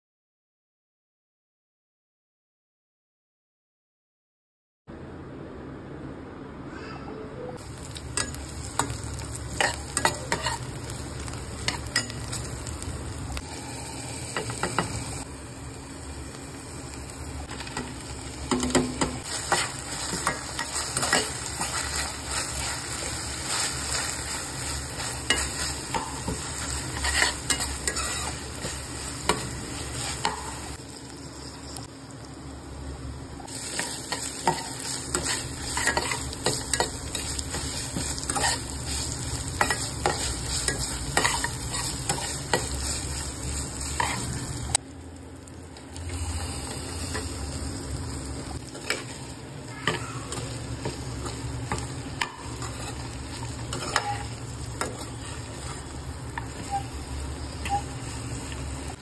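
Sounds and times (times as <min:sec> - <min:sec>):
food sizzling in oil: 0:07.6 - 0:59.0
metal spatula scraping pan: 0:53.7 - 0:55.8.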